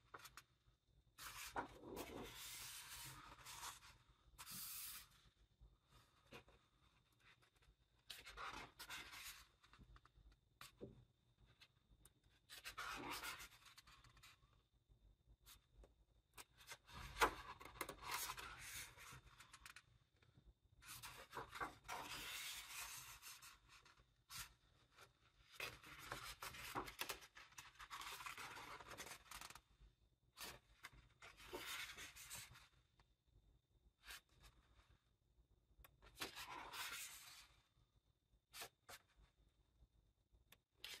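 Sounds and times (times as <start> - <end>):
book pages turning: 1.2 - 5.0, 20.9 - 23.8, 24.4 - 29.6
paper rustling: 20.9 - 29.6.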